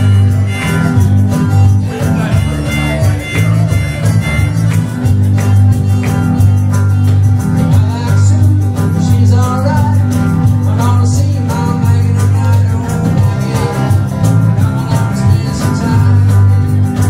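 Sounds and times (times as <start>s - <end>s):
person singing: 0.0s - 6.8s, 7.4s - 17.0s
harmonica: 0.0s - 7.6s
bass line: 0.0s - 17.0s
electric guitar: 0.0s - 17.0s.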